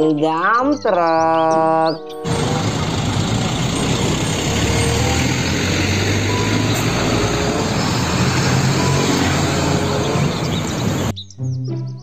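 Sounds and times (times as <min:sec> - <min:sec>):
diesel truck engine rumble: 0:02.2 - 0:11.1
tyre and road noise: 0:02.2 - 0:11.1.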